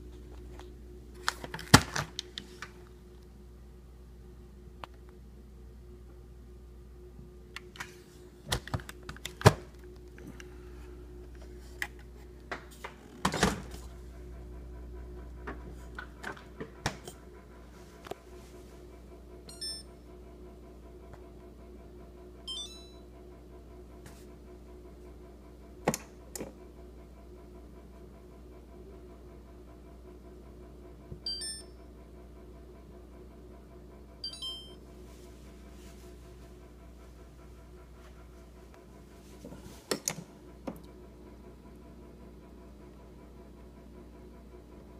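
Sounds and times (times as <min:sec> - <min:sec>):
refrigerator humming: 0:00.0 - 0:44.9
electronic beep chimes: 0:19.5 - 0:19.9, 0:22.5 - 0:23.0, 0:31.3 - 0:31.7, 0:34.2 - 0:34.8.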